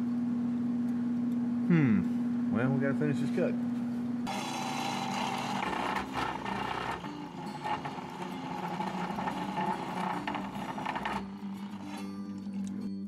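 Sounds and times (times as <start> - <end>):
saw blade cutting metal: 4.3 - 12.2.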